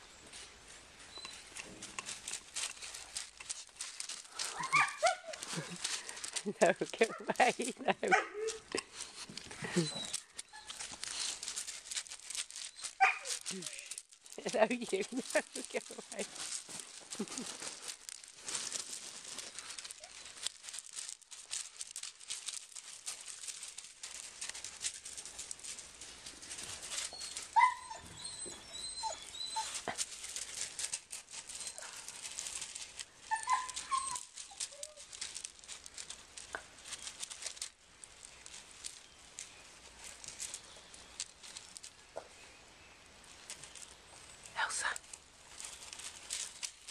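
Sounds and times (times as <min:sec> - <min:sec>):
paws crunching gravel: 0:00.4 - 0:46.9
puppies yelping and whining: 0:04.2 - 0:06.4, 0:07.0 - 0:14.0, 0:19.3 - 0:20.6, 0:26.6 - 0:35.4.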